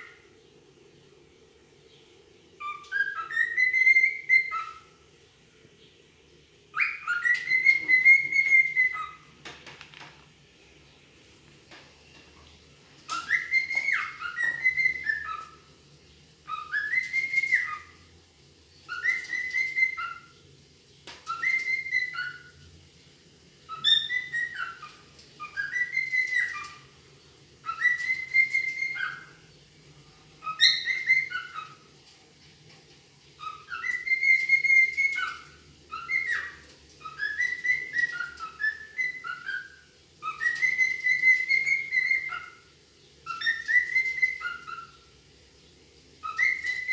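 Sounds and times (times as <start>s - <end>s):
cockatiel whistling: 2.6s - 4.9s, 6.7s - 9.2s, 13.1s - 15.6s, 16.4s - 18.0s, 18.8s - 20.3s, 21.2s - 22.6s, 23.7s - 26.9s, 27.6s - 29.4s, 30.4s - 31.9s, 33.4s - 42.6s, 43.2s - 45.0s, 46.2s - 46.9s.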